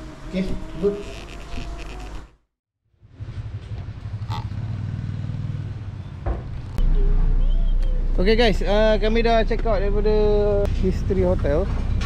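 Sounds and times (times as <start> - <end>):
vehicle engine humming: 3.0 - 12.0.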